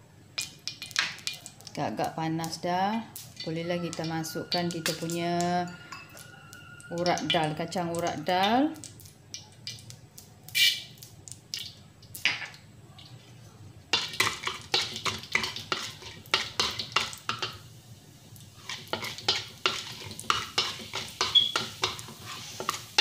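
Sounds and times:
light frying sizzle: 0:00.0 - 0:23.0
spatula scraping a wok: 0:14.0 - 0:17.5, 0:18.5 - 0:23.0.

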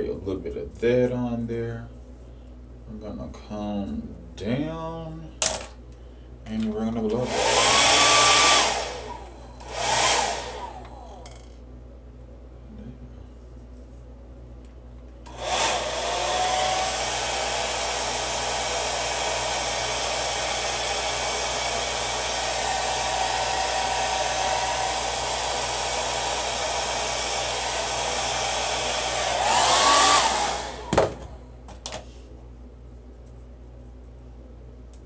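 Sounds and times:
hair dryer blowing: 0:07.2 - 0:11.5, 0:15.3 - 0:31.4.

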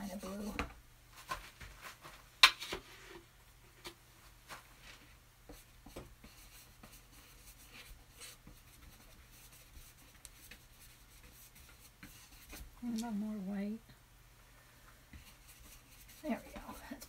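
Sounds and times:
paintbrush brushing on canvas: 0:00.0 - 0:00.6, 0:04.5 - 0:13.2, 0:15.1 - 0:17.0.

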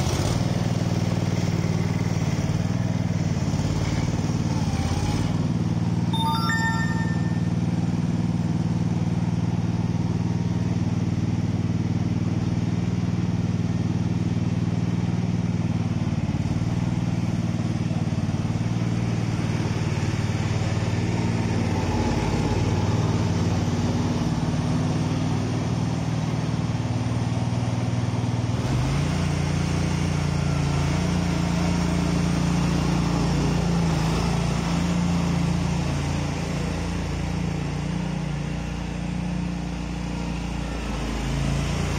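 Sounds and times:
small engine running: 0:00.0 - 0:06.1.

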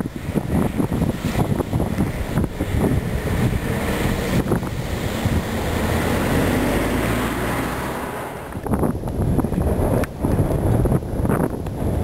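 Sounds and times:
blizzard wind buffeting microphone: 0:00.0 - 0:12.0
vehicle passing on slushy road: 0:00.1 - 0:08.7.

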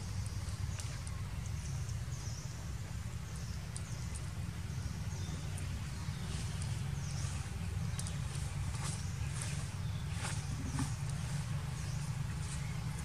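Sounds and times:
faint clicks: 0:00.2 - 0:02.1, 0:03.3 - 0:04.4, 0:05.2 - 0:05.7.

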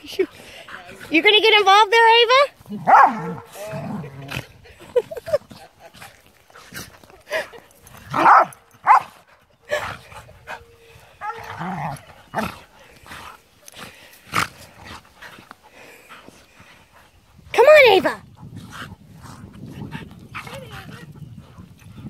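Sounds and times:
dogs growling and barking: 0:02.6 - 0:16.3.

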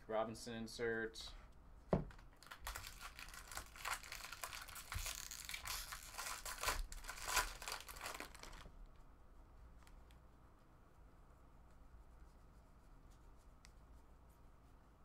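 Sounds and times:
foil wrapper crinkling: 0:02.3 - 0:08.7.

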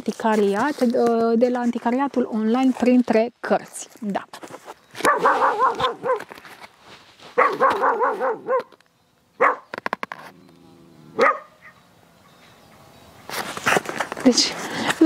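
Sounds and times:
small dog barking: 0:05.0 - 0:06.3, 0:07.4 - 0:08.8, 0:09.4 - 0:09.7, 0:11.1 - 0:11.8.

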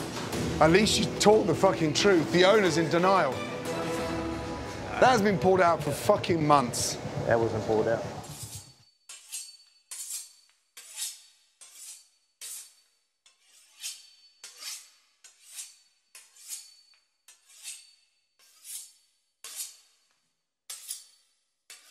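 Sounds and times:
knife sawing through crisp pastry: 0:08.2 - 0:20.1, 0:20.7 - 0:21.9.

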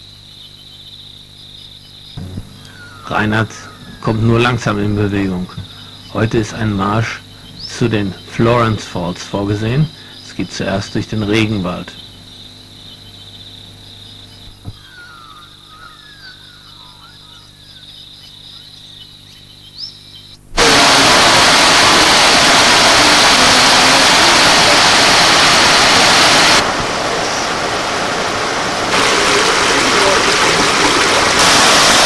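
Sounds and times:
insect high trill: 0:00.0 - 0:26.5
birds chirping: 0:00.0 - 0:32.0
creek flowing: 0:20.6 - 0:32.0
waterfall rushing: 0:20.6 - 0:32.0.

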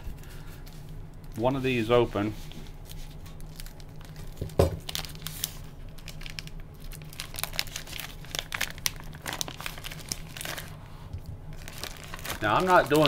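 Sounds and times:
plastic package crinkling: 0:02.8 - 0:13.0.

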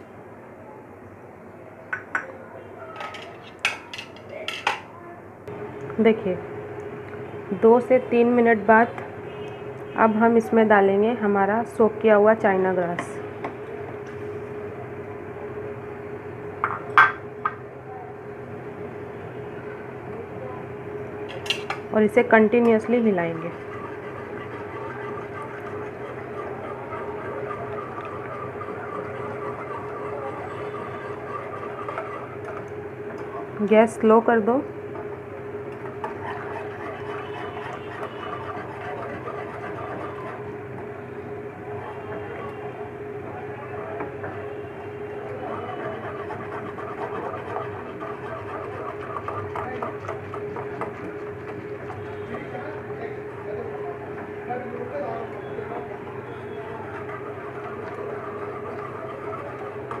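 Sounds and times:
steady background hum: 0:00.0 - 1:00.0
wire whisk scraping steel pan: 0:22.6 - 0:32.6, 0:36.0 - 0:40.4, 0:45.2 - 0:52.3, 0:56.5 - 1:00.0.

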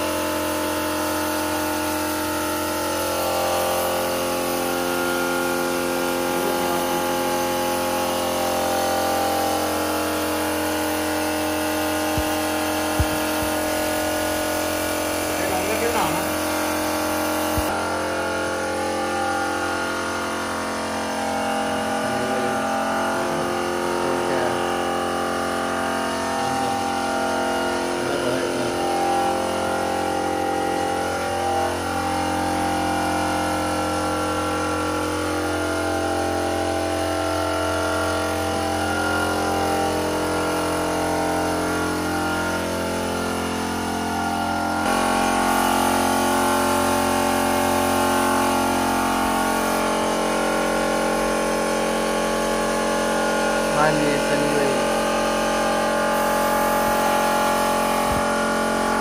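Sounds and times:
air compressor motor humming: 0:00.0 - 0:59.0
air hissing: 0:09.5 - 0:17.7, 0:56.1 - 0:58.3.

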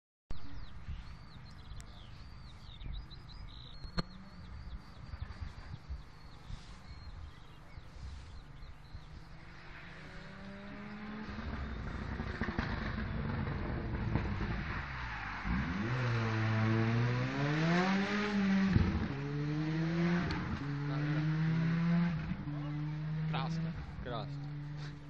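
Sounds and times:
birds chirping: 0:00.3 - 0:14.5, 0:15.5 - 0:25.0
car engine accelerating: 0:08.8 - 0:25.0.

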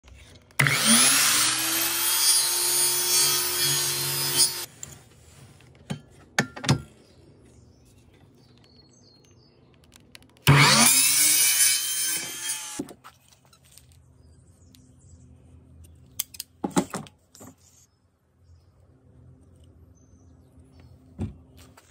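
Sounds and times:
mitre saw cutting wood: 0:00.5 - 0:04.7, 0:10.5 - 0:12.8.

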